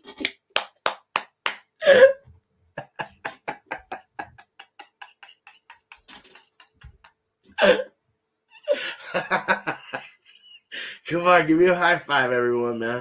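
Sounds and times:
man laughing: 2.8 - 7.9, 8.6 - 11.0.

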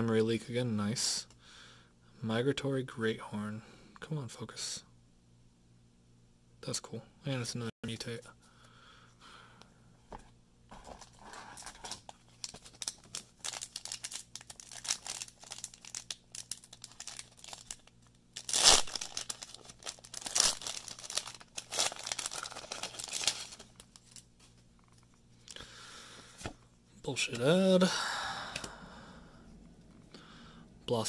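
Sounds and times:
foil wrapper crinkling: 10.8 - 25.0
foil wrapper tearing: 11.5 - 24.3.

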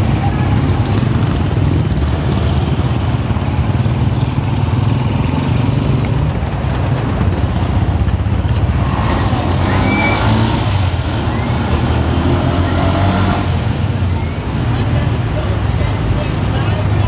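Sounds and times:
motor-tricycle engines running: 0.0 - 17.0
street traffic rumble: 0.0 - 17.0.

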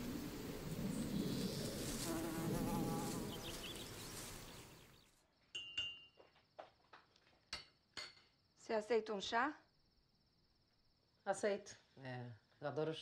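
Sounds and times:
ambient hiss: 0.0 - 5.0
fly buzzing: 0.9 - 5.0
crockery clinks and taps: 5.5 - 6.2.

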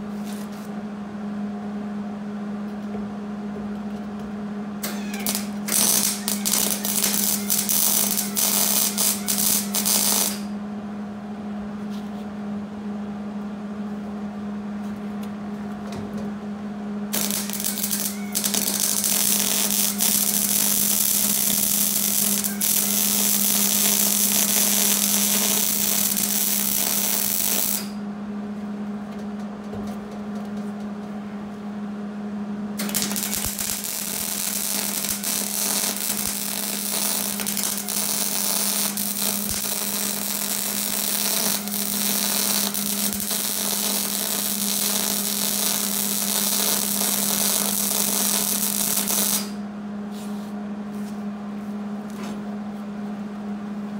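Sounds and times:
steady low hum: 0.0 - 53.9
welder arc crackling: 4.8 - 10.6, 17.1 - 28.0, 32.8 - 49.6.

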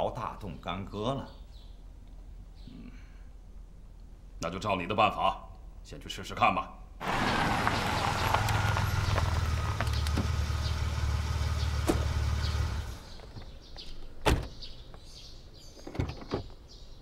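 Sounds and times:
tyre noise: 7.0 - 13.4
car engine rumble: 7.0 - 13.7
car door shutting: 7.1 - 13.1.

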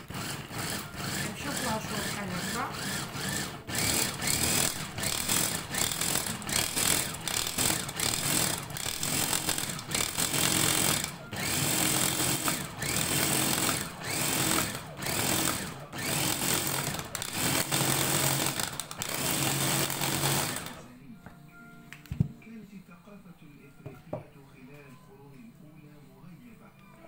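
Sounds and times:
electric chopper motor whirring: 0.0 - 20.8.

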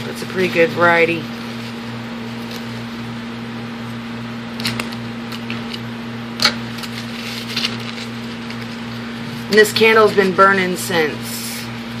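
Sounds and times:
steady low hum: 0.0 - 12.0
paper tissue rustling: 0.2 - 3.2, 6.6 - 11.4.

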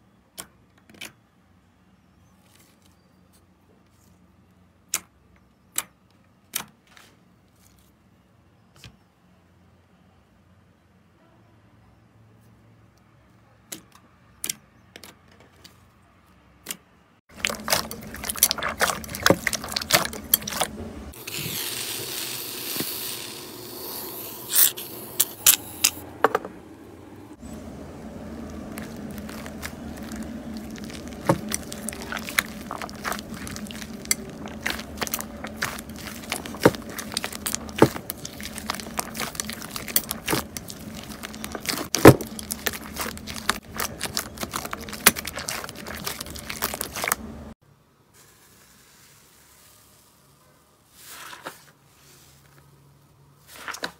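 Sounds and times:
hiss: 21.2 - 25.1.

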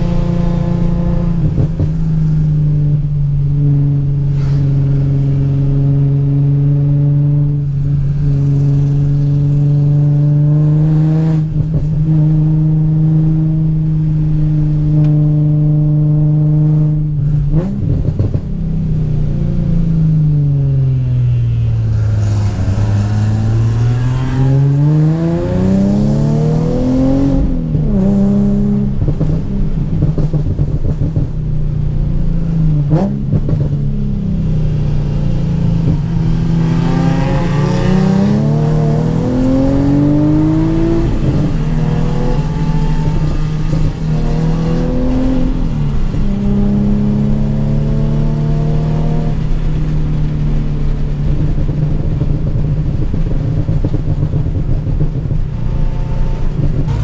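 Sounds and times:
car engine revving: 0.0 - 57.0
exhaust pops and crackles: 29.0 - 31.7, 32.8 - 33.9, 49.3 - 57.0.

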